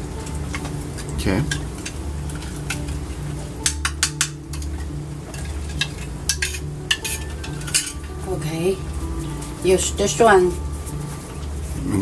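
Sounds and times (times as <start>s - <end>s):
low pulsing hum: 0.0s - 12.0s
spoon clinking against bowl: 5.4s - 8.0s.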